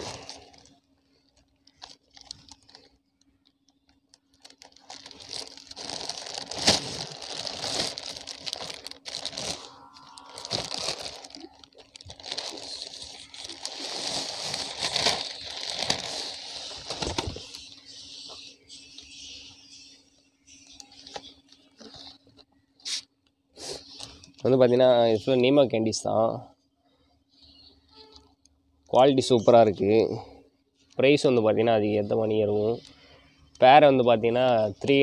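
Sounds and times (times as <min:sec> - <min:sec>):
plastic bags crinkling: 0:00.0 - 0:17.8
faint steady hum: 0:00.0 - 0:35.0.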